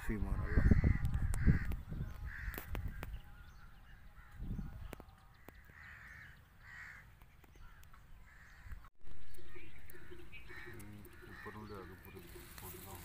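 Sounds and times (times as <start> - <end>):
crows cawing: 0.3 - 3.1, 5.4 - 13.0.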